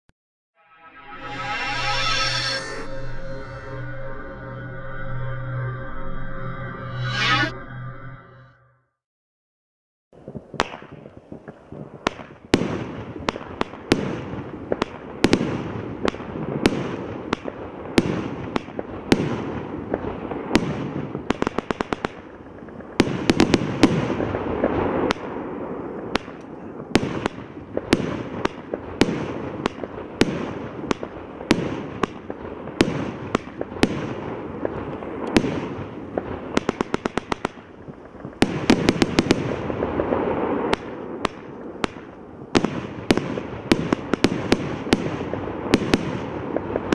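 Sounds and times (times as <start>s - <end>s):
firework crackling: 10.2s - 46.9s
firework shots and bursts: 10.2s - 46.9s.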